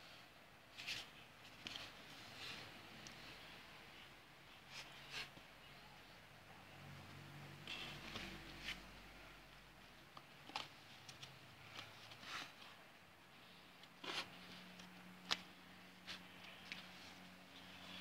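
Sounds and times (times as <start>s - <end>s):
paper and card rustling: 0.7s - 3.4s, 10.0s - 18.0s.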